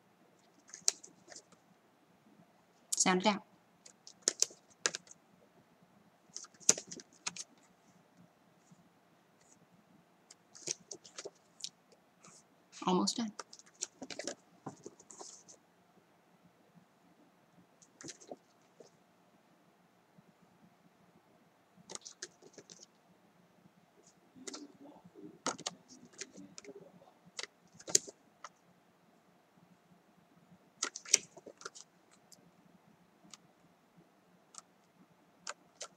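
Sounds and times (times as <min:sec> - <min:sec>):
paper cards rustling: 0:00.6 - 0:01.6, 0:04.0 - 0:05.1, 0:06.4 - 0:07.6, 0:10.5 - 0:11.5, 0:13.4 - 0:15.6, 0:17.9 - 0:18.9, 0:21.9 - 0:22.9, 0:25.5 - 0:26.8, 0:27.4 - 0:28.1, 0:30.8 - 0:31.9.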